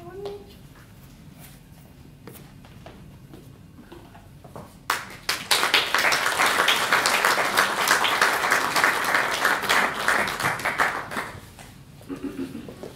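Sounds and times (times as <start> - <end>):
audience applauding: 4.9 - 11.5.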